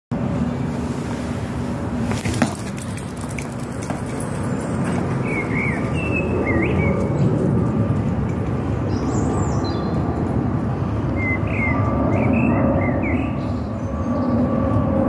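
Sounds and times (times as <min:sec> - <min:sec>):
low outdoor rumble: 0:00.1 - 0:15.0
bird chirping: 0:05.2 - 0:07.2.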